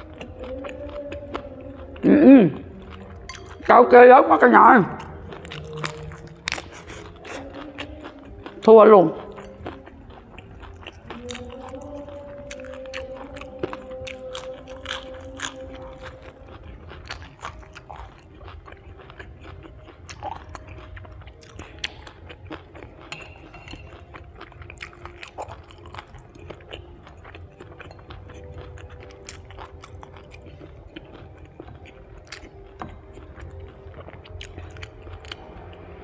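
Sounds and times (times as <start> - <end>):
chewing and crunching food: 0.0 - 36.0
faint karaoke singing: 0.0 - 36.0
wet mouth clicks: 3.3 - 3.6.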